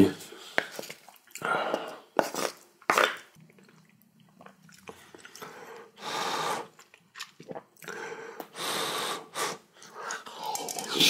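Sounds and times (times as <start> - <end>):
person chewing food: 0.6 - 5.9, 6.5 - 8.5.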